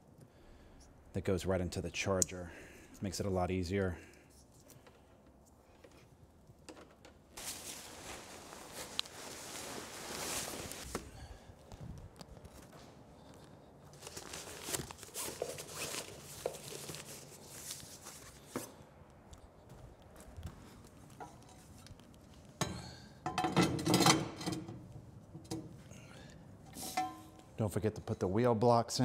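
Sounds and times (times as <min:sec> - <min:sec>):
fabric cover rustling: 0:07.4 - 0:18.8
footsteps: 0:07.4 - 0:22.5.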